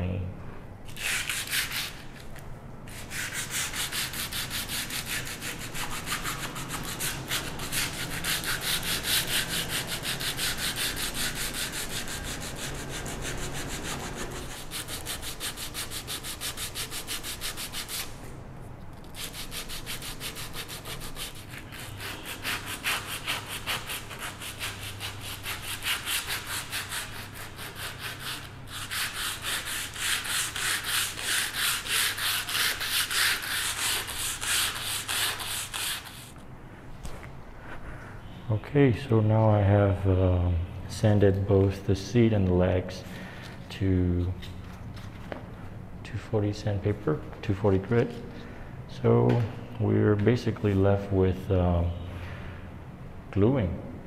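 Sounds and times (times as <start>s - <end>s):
sandpaper rubbing on wood: 1.0s - 2.0s, 2.9s - 18.2s, 19.1s - 36.3s.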